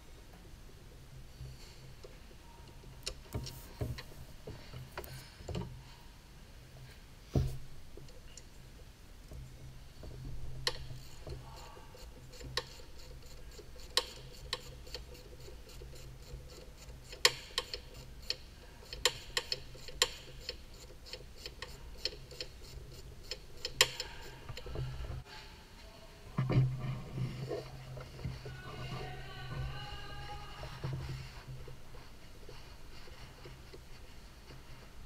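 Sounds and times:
ratchet wrench clicking: 12.0 - 24.6.

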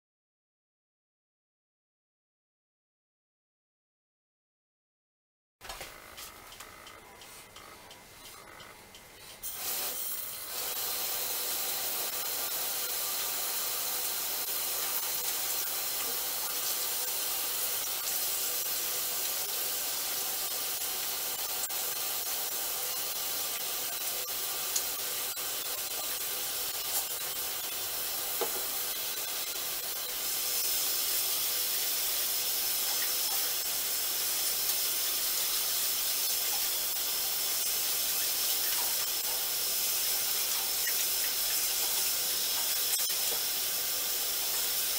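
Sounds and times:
faucet running into sink: 9.5 - 44.9.

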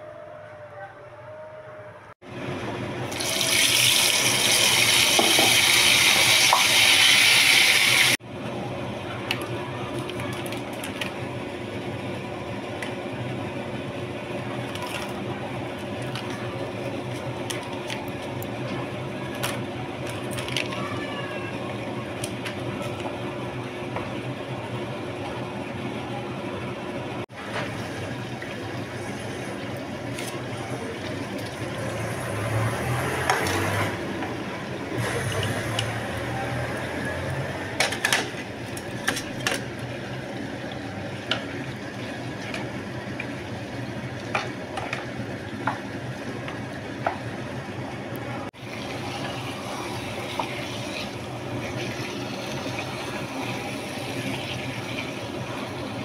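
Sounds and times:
food sizzling in oil: 3.1 - 8.2.

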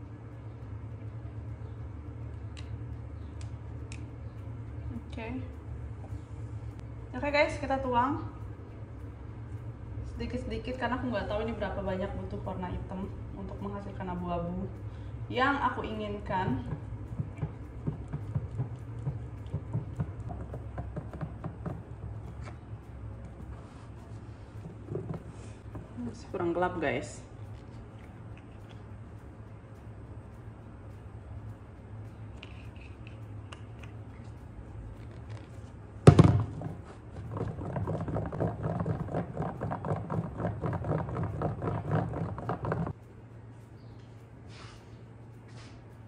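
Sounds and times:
steady low hum: 0.0 - 46.0
stirrer tapping against container: 16.6 - 22.5, 36.5 - 43.0.

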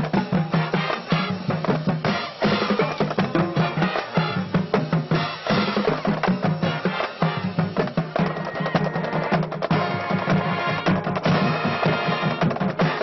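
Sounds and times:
marching band playing: 0.0 - 13.0
snare and bass drums: 0.0 - 13.0
low brass notes: 2.1 - 6.0.

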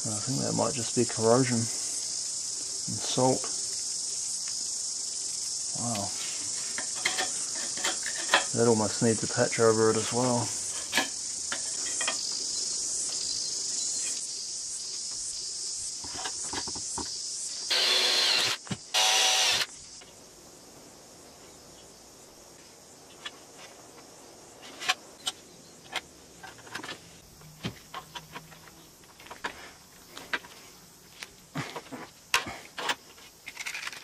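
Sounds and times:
crickets chirring: 0.0 - 34.0
cordless drill boring through metal: 17.7 - 19.7.

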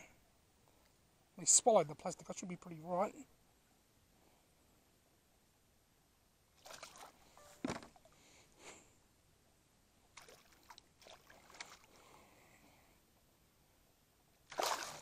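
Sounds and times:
fish splashing in water: 14.5 - 15.0.

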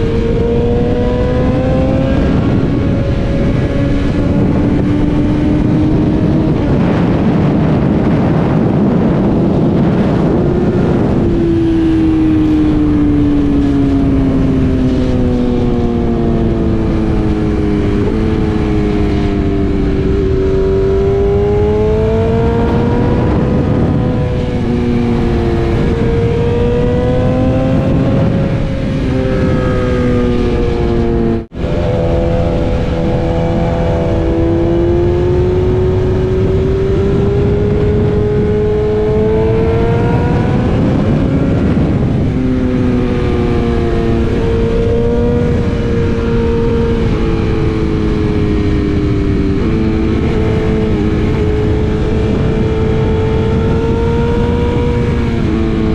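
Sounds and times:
motorcycle engine running: 0.0 - 55.9
wind rush on microphone: 0.0 - 55.9.

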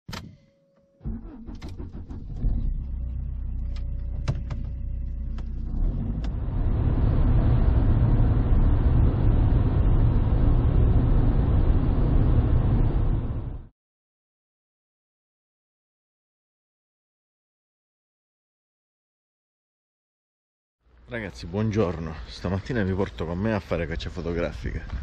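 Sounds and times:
brief tone: 0.3 - 1.0
car engine running: 1.1 - 13.7
road noise: 1.1 - 13.7, 20.9 - 25.0.

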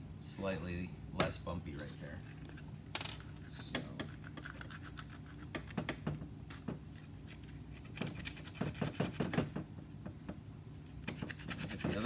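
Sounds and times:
sandpaper scratching on leather: 11.1 - 12.0.

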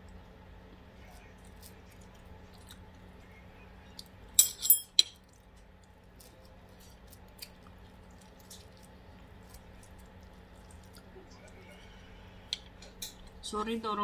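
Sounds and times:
low steady hum: 0.0 - 14.0
cutlery clinking against a dish: 4.4 - 5.2.

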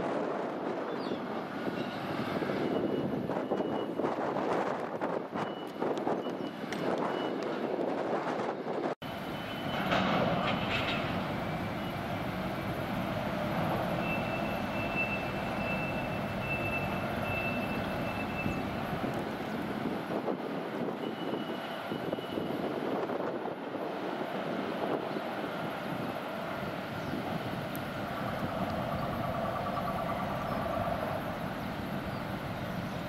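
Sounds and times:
distant machinery rumble: 9.0 - 33.0.

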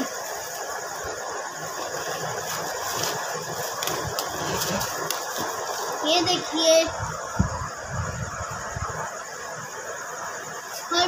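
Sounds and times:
steady background noise: 0.0 - 11.0
plastic and cardboard rustling: 1.6 - 6.0.

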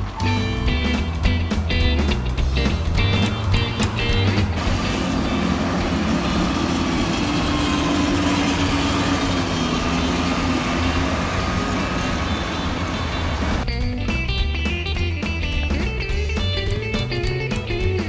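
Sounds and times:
street traffic: 0.0 - 18.0
go-kart engines passing: 2.8 - 13.7.

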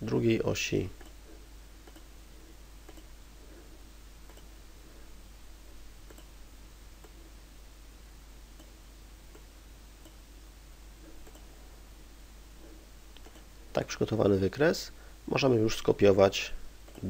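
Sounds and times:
low hiss and hum: 0.0 - 17.0
computer mouse clicks: 1.8 - 2.1, 2.8 - 3.1, 4.2 - 4.5, 6.0 - 6.3, 11.2 - 11.5, 13.1 - 13.5.

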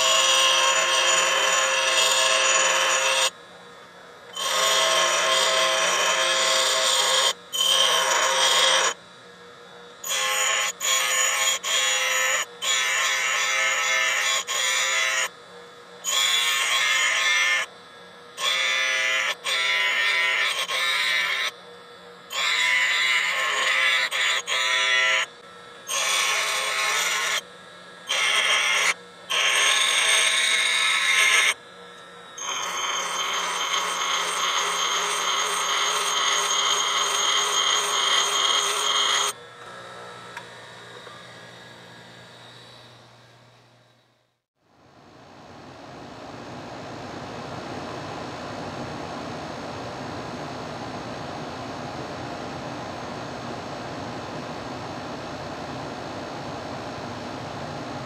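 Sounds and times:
tool bit grinding on grinder wheel: 0.0 - 3.4, 4.3 - 9.0, 10.0 - 15.3, 16.0 - 17.7, 18.4 - 21.6, 22.3 - 43.0
grinder motor humming: 0.0 - 44.2.

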